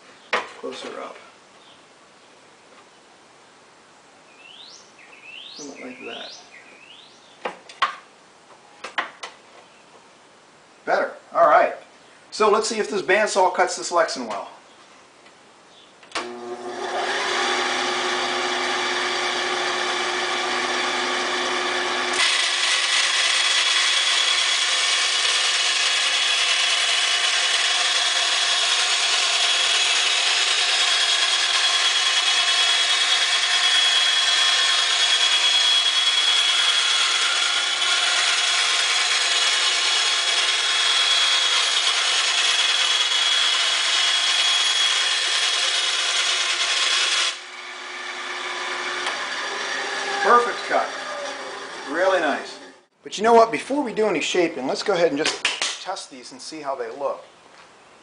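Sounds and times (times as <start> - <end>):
bandsaw cutting plastic: 16.2 - 52.8.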